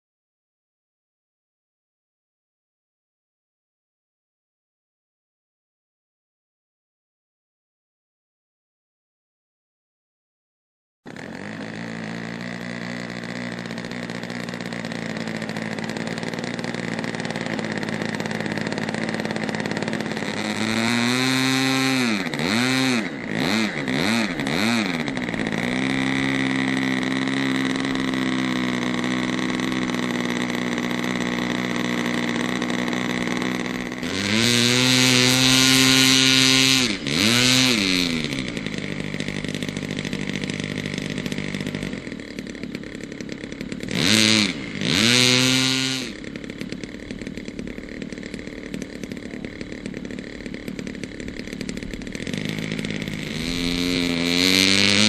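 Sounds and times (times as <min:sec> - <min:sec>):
model plane engine revving: 0:11.1 - 0:55.0.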